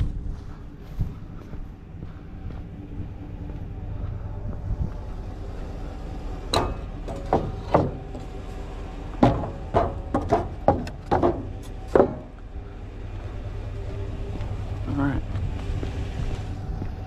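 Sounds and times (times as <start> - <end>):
wooden boards knocking on steel: 6.6 - 8.2, 9.2 - 12.4.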